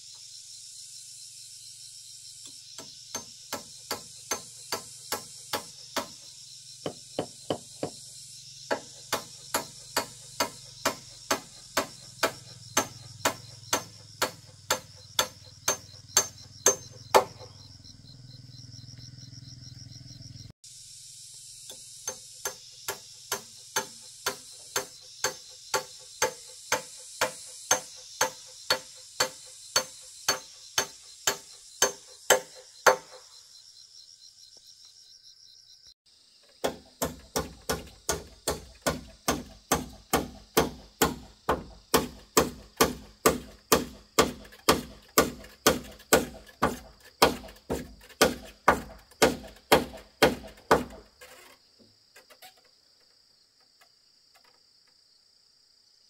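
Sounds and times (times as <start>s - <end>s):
hammer striking nails into wood: 2.8s - 6.2s, 6.8s - 8.0s, 8.7s - 17.5s, 22.0s - 33.2s, 36.6s - 51.1s.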